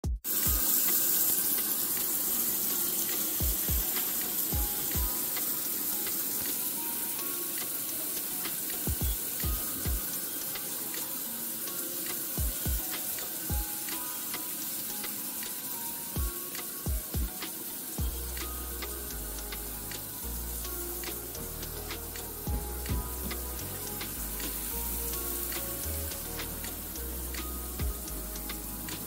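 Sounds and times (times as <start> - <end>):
kick-drum beats: 0.0 - 0.7, 3.4 - 5.2, 8.9 - 10.1, 12.4 - 12.9, 13.5 - 13.7, 16.2 - 18.3, 22.5 - 24.6, 27.8 - 28.1
shower water hissing: 0.2 - 29.0.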